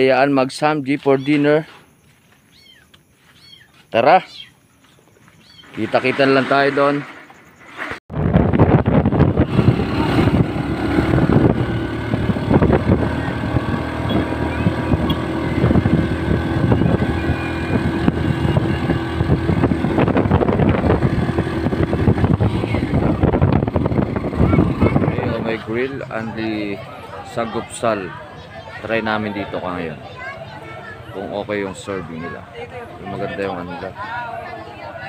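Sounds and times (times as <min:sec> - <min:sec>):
wind buffeting microphone: 0:08.1 - 0:27.7
motorcycle engine drone: 0:08.1 - 0:35.0.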